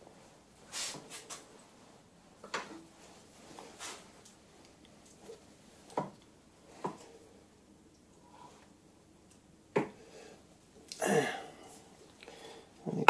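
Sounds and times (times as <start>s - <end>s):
rustling scrape: 0.7s - 1.5s, 3.0s - 4.1s.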